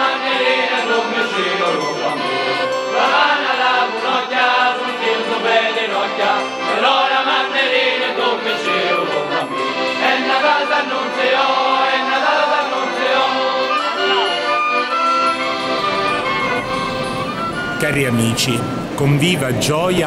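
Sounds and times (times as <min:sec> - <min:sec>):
choir singing slow chant: 0:00.0 - 0:14.6.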